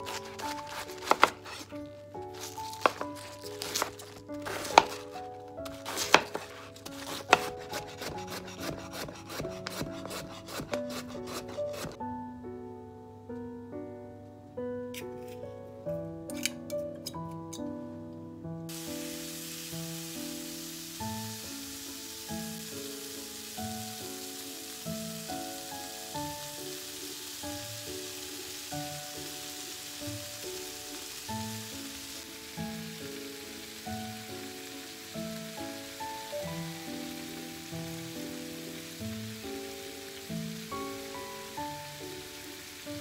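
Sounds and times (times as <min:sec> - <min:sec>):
knife chopping on wooden board: 0:00.0 - 0:01.7, 0:02.4 - 0:12.0
meat sizzling in a frying pan: 0:00.0 - 0:10.7, 0:18.7 - 0:43.0
soft piano music: 0:00.0 - 0:43.0.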